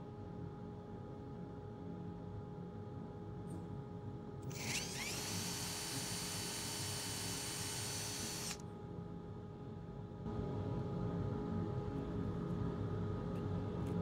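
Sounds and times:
cordless drill drilling into wood: 4.5 - 8.6.

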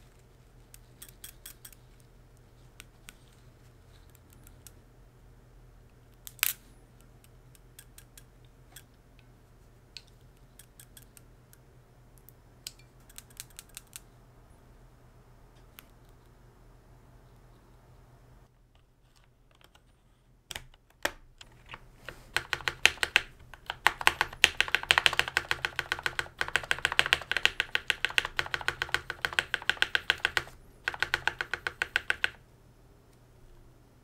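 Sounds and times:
fast typing on mechanical keyboard: 22.1 - 32.4.

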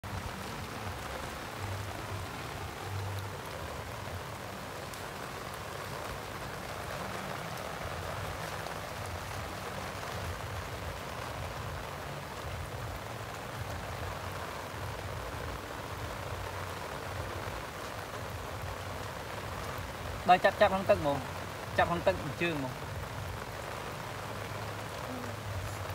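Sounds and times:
steady rain falling: 0.0 - 25.9.

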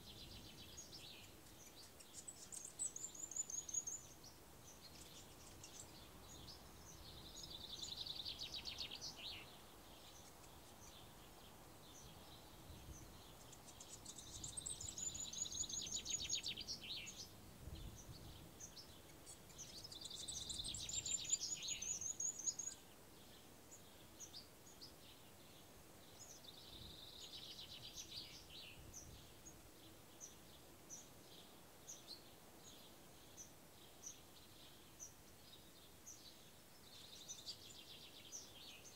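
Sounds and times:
songbird trilling: 11.9 - 17.3, 18.0 - 22.8.

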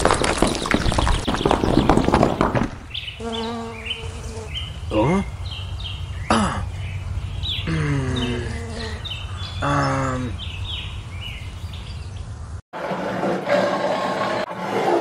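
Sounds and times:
birds chirping: 0.4 - 12.5.

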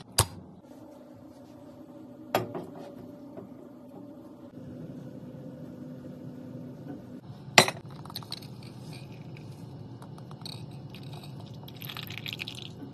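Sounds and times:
coffee pouring into glass: 10.1 - 12.9.

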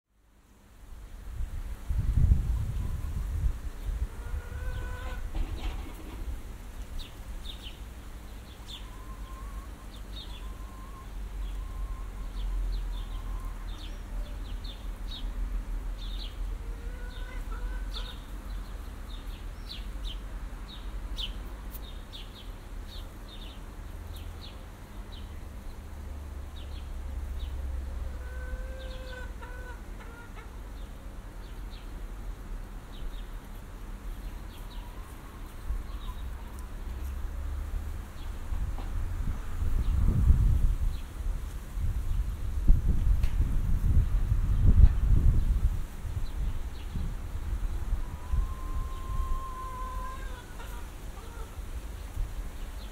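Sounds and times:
low wind rumble: 0.4 - 20.8, 24.7 - 52.9
chickens clucking: 4.0 - 6.3, 8.7 - 14.5, 16.6 - 18.3, 28.0 - 30.9, 34.6 - 37.2, 48.1 - 51.6
small birds chirping: 6.8 - 15.4, 16.0 - 25.9, 32.9 - 37.3.

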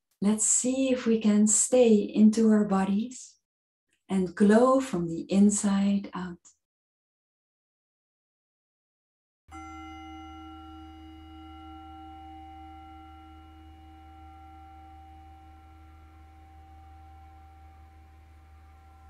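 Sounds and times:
meditation bell ringing: 9.5 - 19.0.

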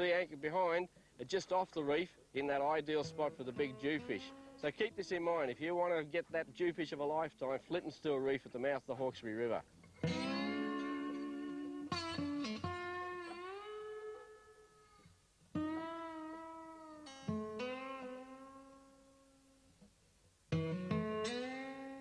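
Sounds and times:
slow plucked guitar notes: 2.8 - 5.5, 9.9 - 19.5, 20.5 - 22.0.

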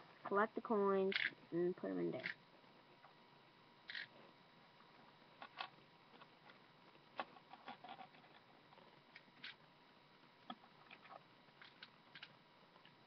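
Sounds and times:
coins and plastic pieces clicking: 1.1 - 1.4, 3.9 - 4.1.

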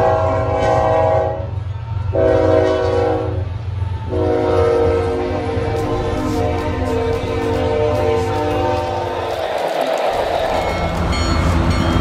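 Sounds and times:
locomotive air horn blasts: 0.0 - 1.5, 2.1 - 9.3
train locomotives running: 0.0 - 12.0.

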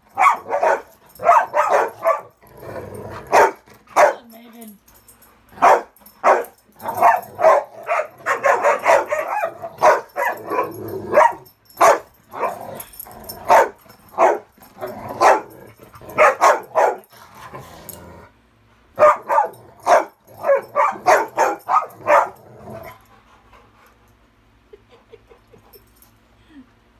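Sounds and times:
dogs barking: 0.1 - 2.4, 3.2 - 4.3, 5.6 - 12.7, 13.4 - 17.1, 19.0 - 23.0.

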